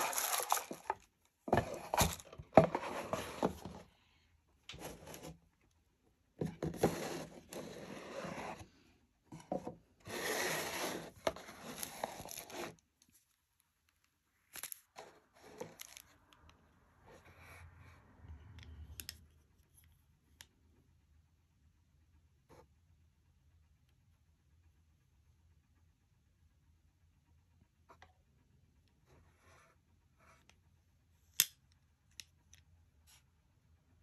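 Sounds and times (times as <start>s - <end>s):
cardboard box rustling and scraping: 0.0s - 3.9s, 4.8s - 5.4s, 6.4s - 8.7s, 9.4s - 12.8s.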